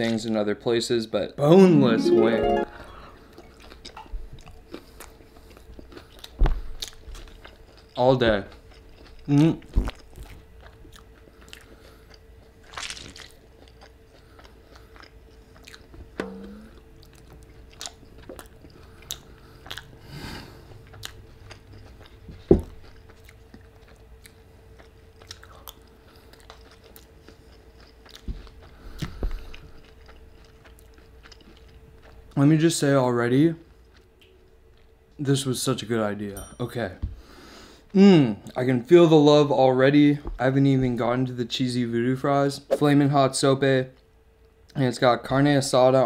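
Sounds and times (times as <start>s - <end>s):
faint steady hum: 0.1s - 46.0s
chewing food: 3.4s - 16.2s, 16.8s - 32.4s, 33.6s - 34.9s.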